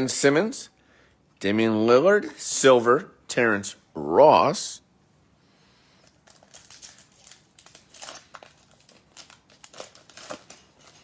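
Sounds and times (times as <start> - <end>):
foil wrapper crinkling: 6.0 - 11.0.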